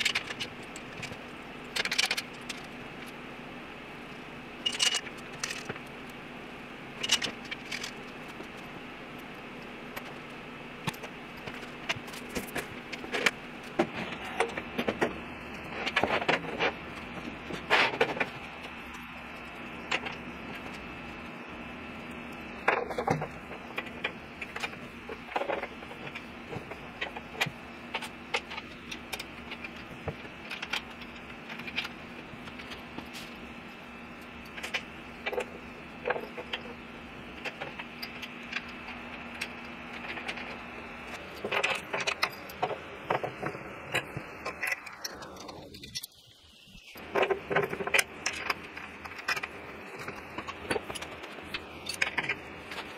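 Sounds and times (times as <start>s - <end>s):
metal parts and tools clinking: 0.0s - 2.8s, 4.6s - 5.9s, 7.0s - 8.5s, 47.0s - 52.9s
steady background hum: 0.0s - 52.9s.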